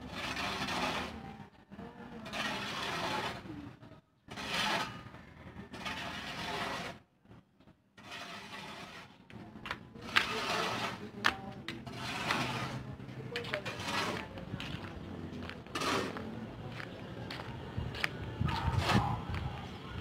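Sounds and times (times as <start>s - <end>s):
ash scraped across concrete: 0.0s - 1.4s, 2.1s - 3.6s, 4.3s - 7.1s, 8.0s - 16.4s, 18.6s - 19.3s.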